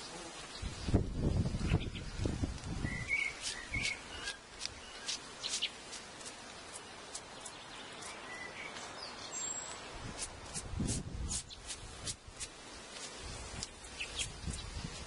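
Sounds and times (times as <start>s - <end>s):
bees humming: 0.0s - 2.2s
birds chirping: 0.0s - 10.2s, 12.6s - 15.0s
brush sweeping: 2.6s - 9.0s, 9.7s - 15.0s.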